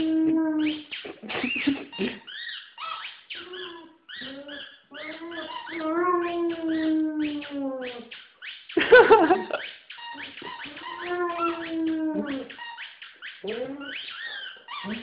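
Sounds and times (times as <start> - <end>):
dog howling: 4.2 - 8.1, 10.6 - 12.5
squeaky ball toy squeaking: 9.4 - 15.0.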